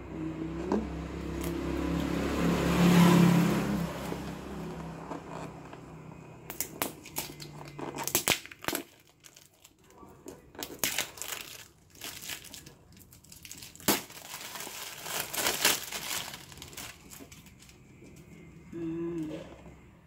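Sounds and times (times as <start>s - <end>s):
wrapping crinkling and tearing: 6.5s - 17.9s.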